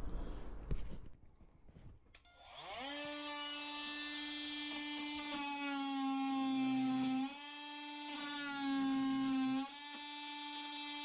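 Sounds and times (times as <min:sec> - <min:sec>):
oscillating multi-tool cutting wood: 0:02.2 - 0:11.0.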